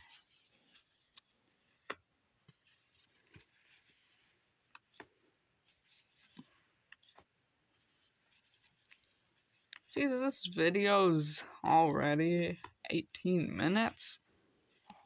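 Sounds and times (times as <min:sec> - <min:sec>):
cards rustling: 0:00.0 - 0:11.3.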